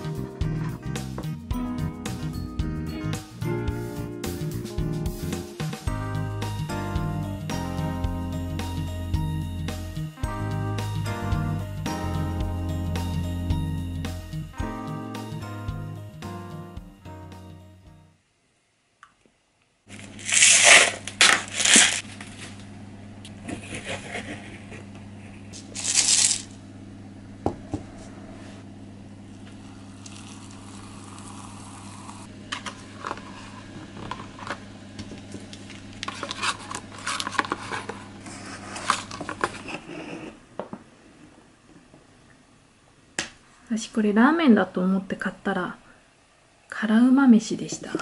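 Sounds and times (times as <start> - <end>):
plastic crinkling: 19.9 - 22.6, 25.6 - 26.6
plastic packaging tearing: 19.9 - 22.6, 25.6 - 26.6, 35.9 - 40.2
steady low hum: 19.9 - 48.0.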